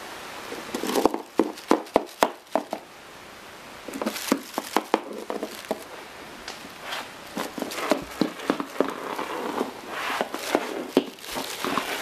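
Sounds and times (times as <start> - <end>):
toy figures tapping on hard floor: 0.8 - 2.8, 4.0 - 5.8, 7.4 - 9.0, 10.5 - 11.8.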